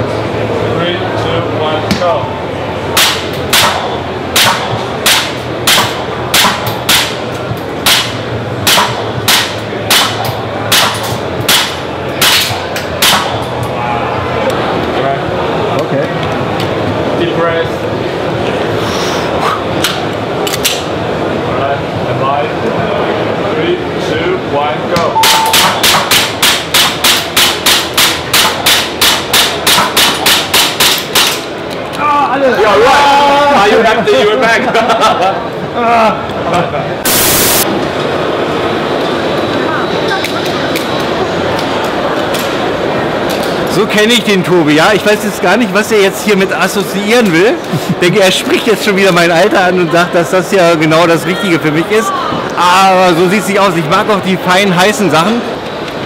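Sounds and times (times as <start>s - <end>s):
hum of a busy hall: 0.0s - 56.0s
airsoft pistol shots: 3.0s - 7.2s, 8.7s - 13.4s.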